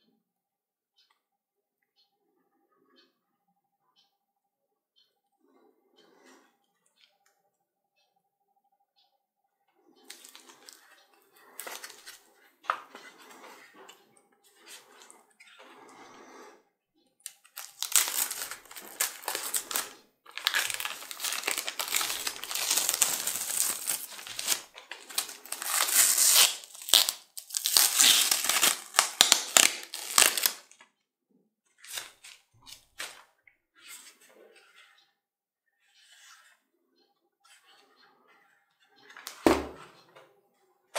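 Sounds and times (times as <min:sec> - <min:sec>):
plastic wrapping crinkling: 0:11.6 - 0:12.1, 0:17.3 - 0:30.8.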